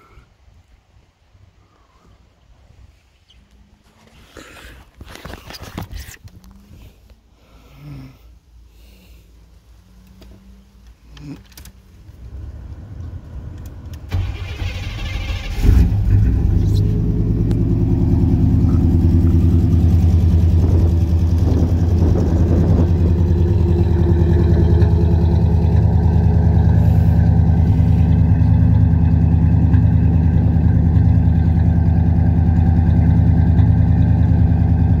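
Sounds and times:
truck engine idling: 0:11.9 - 0:35.0.

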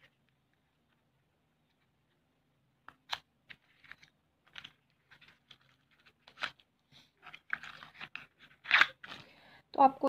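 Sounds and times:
paper rustling: 0:03.0 - 0:09.3.

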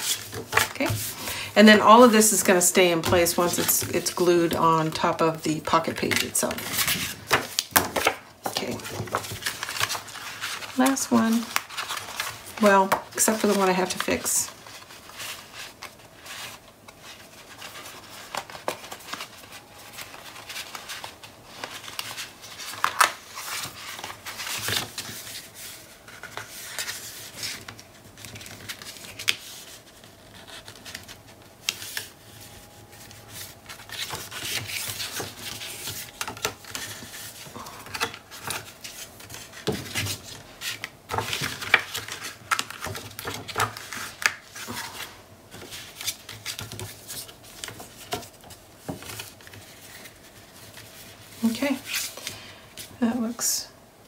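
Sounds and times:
paper rustling and tapping: 0:33.4 - 0:44.8, 0:45.5 - 0:50.9.

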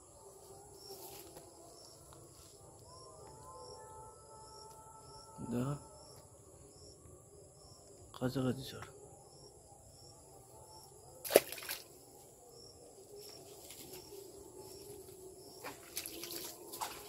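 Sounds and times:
hands splashing in water: 0:11.2 - 0:11.9, 0:15.6 - 0:17.0.

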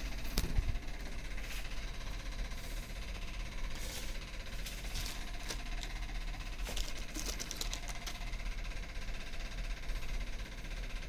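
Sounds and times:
steady low hum: 0:00.0 - 0:11.0
small parts and packaging rustling: 0:03.6 - 0:08.4.

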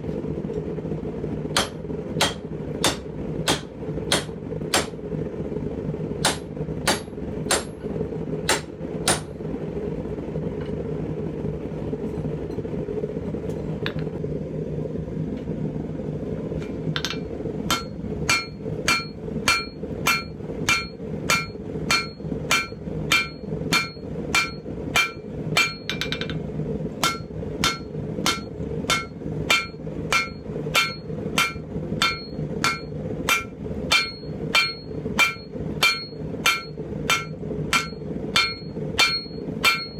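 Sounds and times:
hammer striking steel on anvil: 0:01.5 - 0:05.0, 0:06.2 - 0:09.4, 0:16.9 - 0:26.4, 0:27.0 - 0:39.9.

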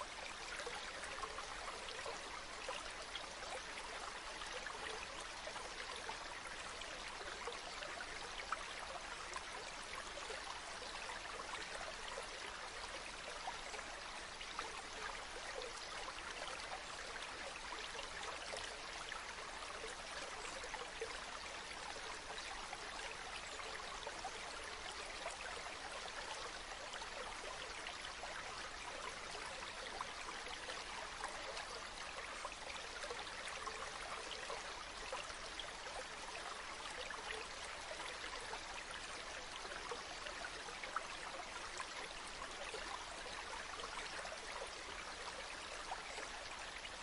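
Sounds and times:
stream trickling and bubbling: 0:00.0 - 0:47.0.

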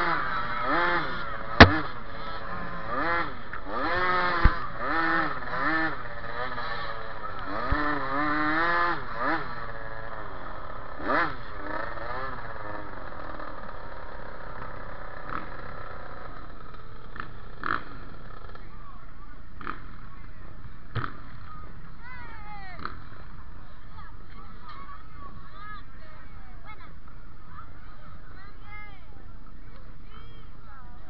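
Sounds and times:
minibike engine revving: 0:00.0 - 0:22.0
sharp knocks: 0:01.6 - 0:01.9.

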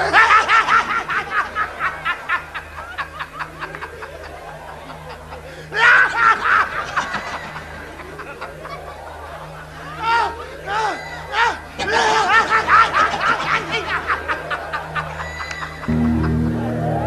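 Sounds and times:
person laughing in a high voice: 0:09.8 - 0:16.3.

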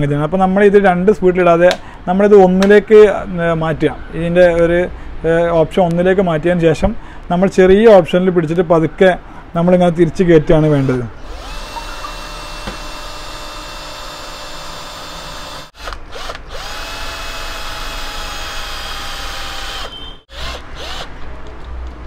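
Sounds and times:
cordless drill whining into metal: 0:10.8 - 0:21.1.

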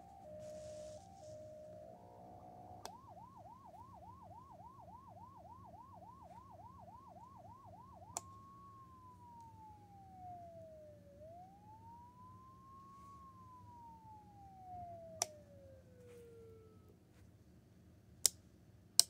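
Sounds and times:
electronic siren yelp and wail: 0:00.0 - 0:16.9
siren switch click: 0:02.6 - 0:03.4, 0:08.0 - 0:08.5, 0:15.1 - 0:16.6.

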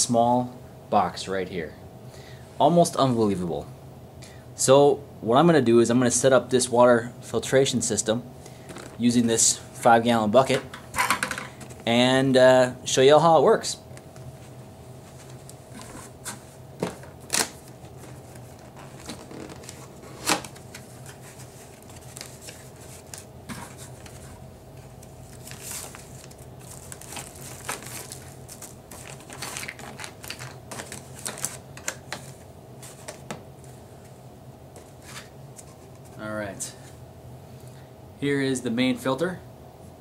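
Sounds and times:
paper and plastic rustling: 0:14.3 - 0:33.8
cardboard box being unpacked: 0:15.2 - 0:24.4, 0:25.3 - 0:31.9.

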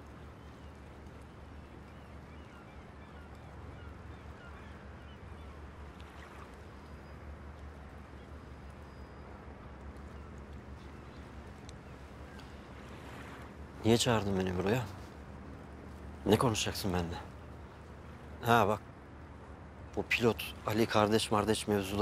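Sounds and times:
faint bird chirps: 0:00.0 - 0:18.7.

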